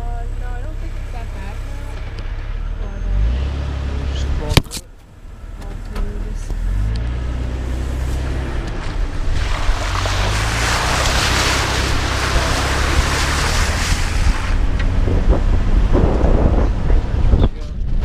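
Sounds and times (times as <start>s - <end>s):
car engine running: 0.0s - 18.0s
tyres splashing through mud: 3.1s - 17.2s.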